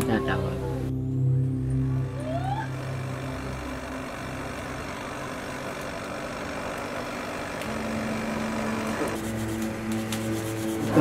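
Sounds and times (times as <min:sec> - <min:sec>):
forge fire roaring: 0:01.8 - 0:09.9.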